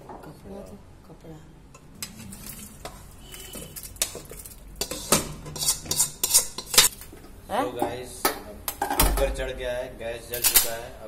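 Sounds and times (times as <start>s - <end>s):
metal ladle scraping metal pan: 2.0s - 7.0s.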